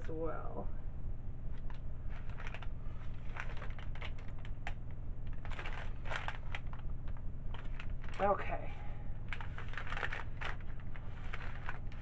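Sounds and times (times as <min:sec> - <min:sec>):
steady low hum: 0:00.0 - 0:12.0
parchment paper crinkling: 0:01.6 - 0:08.3, 0:09.2 - 0:12.0.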